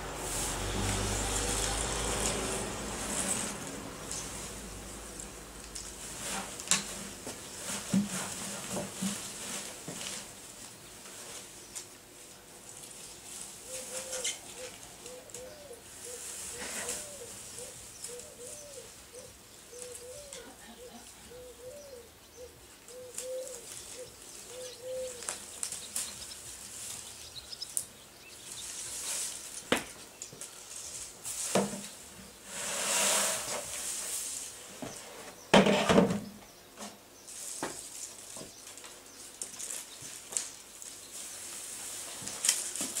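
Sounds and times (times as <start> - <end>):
dry hay rustling: 0.0 - 21.5, 22.8 - 35.5, 37.1 - 43.0
pigeon cooing: 13.6 - 25.4.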